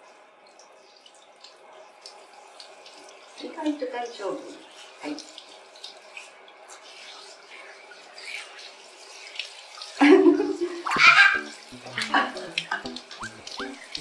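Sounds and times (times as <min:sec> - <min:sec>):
shower water spraying: 0:02.6 - 0:14.0
background music: 0:10.9 - 0:14.0.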